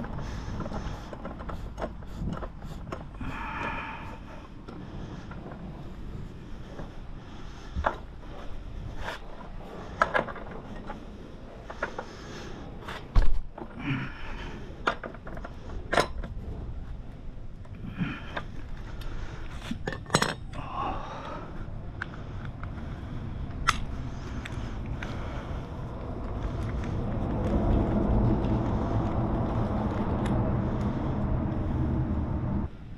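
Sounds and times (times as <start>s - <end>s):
metal tools clinking: 19.8s - 20.6s.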